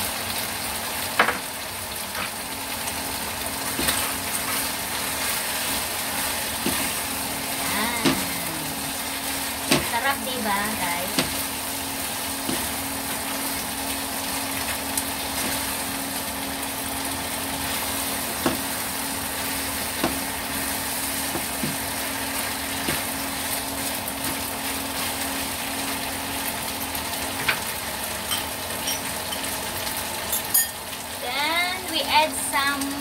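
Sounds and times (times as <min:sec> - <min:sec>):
food sizzling in a wok: 0:00.0 - 0:33.0
steady low hum: 0:03.2 - 0:26.4.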